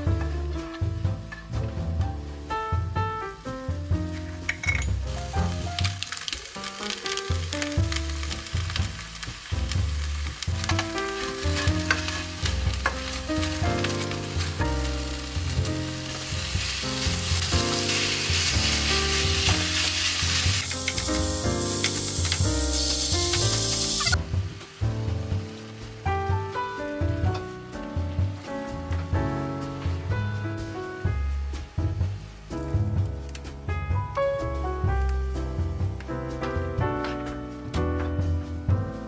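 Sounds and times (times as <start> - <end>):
background music: 0.0 - 39.0
food sizzling in a frying pan: 4.3 - 28.2.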